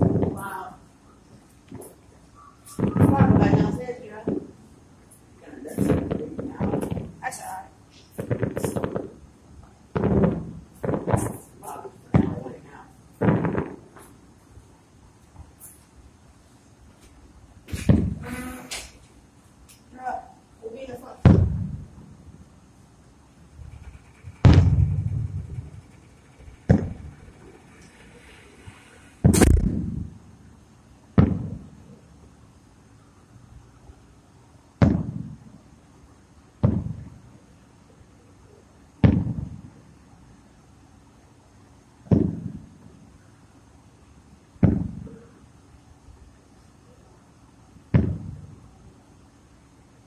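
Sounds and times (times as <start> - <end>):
fireworks booming: 0.0 - 0.8, 1.7 - 4.6, 5.6 - 14.2, 17.6 - 19.0, 21.1 - 22.5, 23.5 - 30.4, 31.1 - 32.1, 34.8 - 35.6, 36.6 - 37.2, 39.0 - 39.9, 42.0 - 43.0, 44.6 - 45.4, 47.9 - 48.7.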